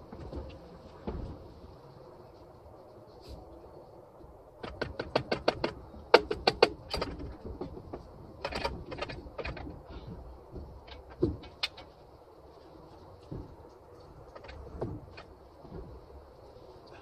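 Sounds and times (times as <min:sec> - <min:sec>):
tools clicking and knocking on engine: 0:04.6 - 0:12.0.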